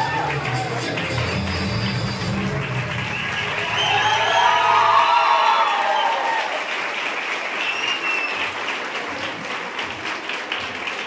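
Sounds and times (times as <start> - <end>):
audience cheering: 0.0 - 8.6
audience applauding: 0.0 - 11.0.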